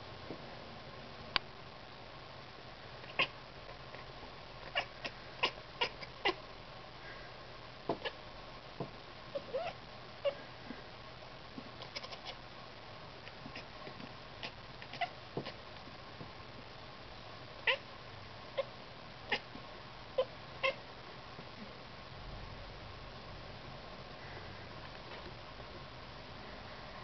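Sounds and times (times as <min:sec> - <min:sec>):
cat chattering chirps: 0:03.1 - 0:03.3, 0:04.7 - 0:06.4, 0:09.4 - 0:10.4, 0:11.9 - 0:12.4, 0:14.9 - 0:15.1, 0:20.2 - 0:20.8.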